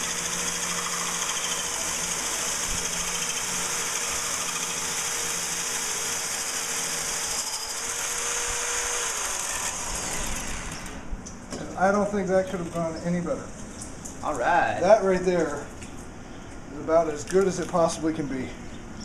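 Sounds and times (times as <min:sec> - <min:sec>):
electric drill grinding through glass: 0:00.0 - 0:11.0.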